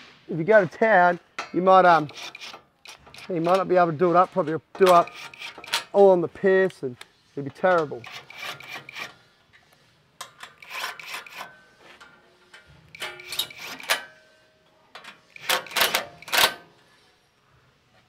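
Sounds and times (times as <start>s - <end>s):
impact wrench bursts: 4.8s - 6.0s, 12.9s - 14.2s, 15.0s - 16.6s.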